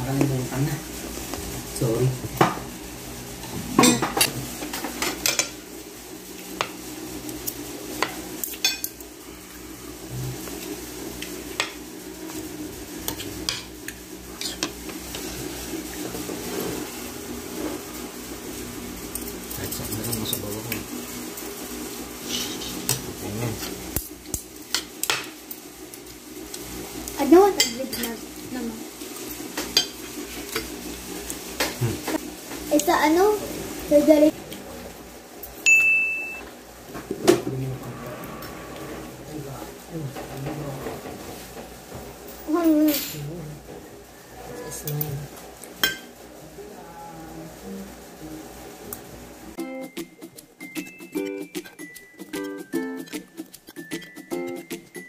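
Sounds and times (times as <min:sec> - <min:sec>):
cutlery scraping ceramic plate: 0:22.2 - 0:23.0.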